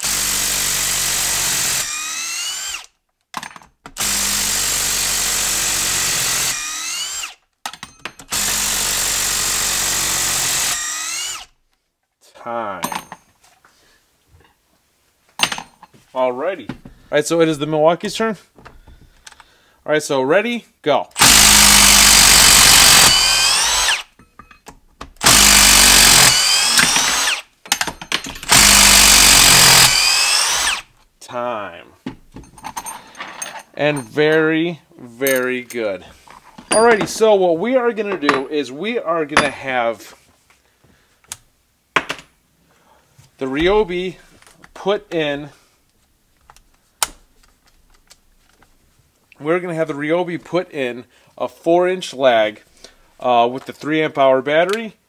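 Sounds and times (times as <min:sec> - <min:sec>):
impact driver hammering and whining: 0:00.0 - 0:02.9, 0:03.9 - 0:11.5, 0:21.2 - 0:24.3, 0:25.0 - 0:30.9
impact driver hammering: 0:21.2 - 0:24.2, 0:25.0 - 0:30.8.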